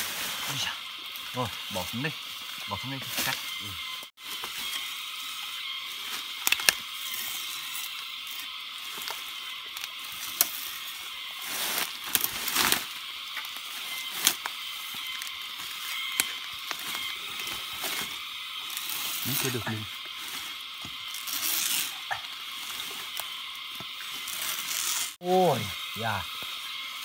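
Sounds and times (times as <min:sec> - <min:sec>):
steady high hiss: 0:00.0 - 0:27.0
plant layers tearing: 0:05.9 - 0:25.2.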